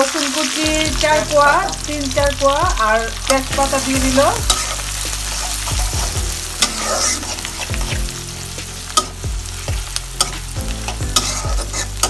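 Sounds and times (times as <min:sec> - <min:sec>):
onions sizzling in hot oil: 0:00.0 - 0:12.0
spatula scraping a wok: 0:03.3 - 0:12.0.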